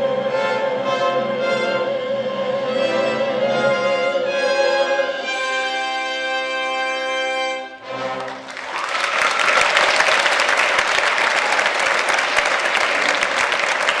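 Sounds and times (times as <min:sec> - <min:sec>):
audience applause: 0:08.2 - 0:14.0.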